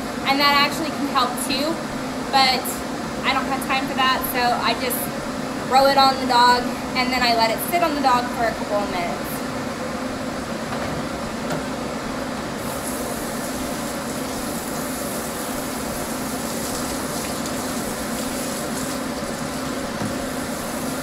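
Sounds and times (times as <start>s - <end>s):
steady mechanical hum: 0.0s - 21.0s.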